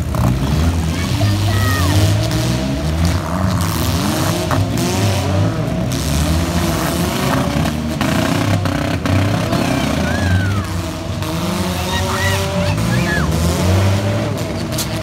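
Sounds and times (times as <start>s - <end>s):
car engines revving hard: 0.0s - 15.0s.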